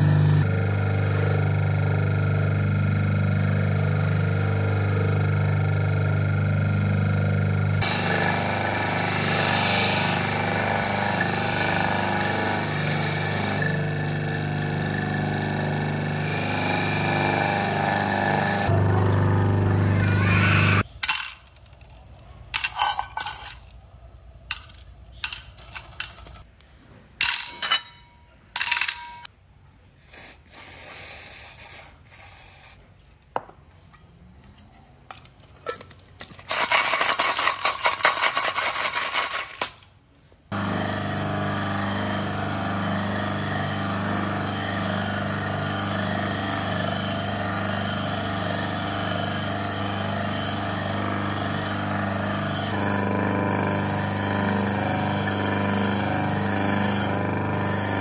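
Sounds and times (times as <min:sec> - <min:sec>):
electric motor humming: 0:00.0 - 0:20.8, 0:40.5 - 0:58.0
metal parts clinking into cup: 0:20.9 - 0:23.8, 0:24.5 - 0:26.4, 0:27.2 - 0:29.3, 0:35.1 - 0:39.8
metal parts rattling: 0:20.9 - 0:23.8, 0:24.4 - 0:26.4, 0:27.2 - 0:29.3, 0:35.1 - 0:39.9.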